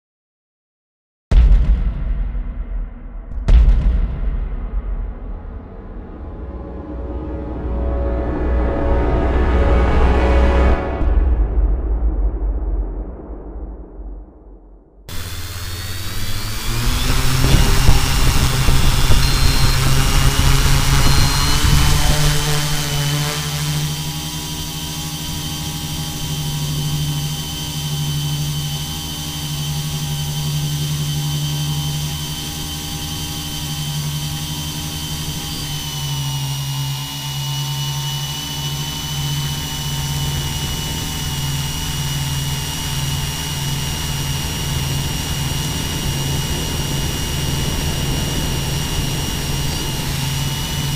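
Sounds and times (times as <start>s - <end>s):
drone propellers humming: 15.1s - 50.9s
high motor whine: 15.1s - 50.9s.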